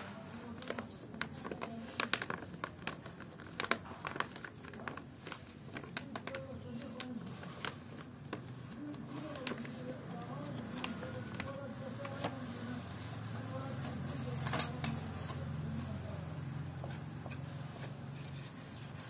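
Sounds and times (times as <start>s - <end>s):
packaging crinkling: 0.4s - 12.5s.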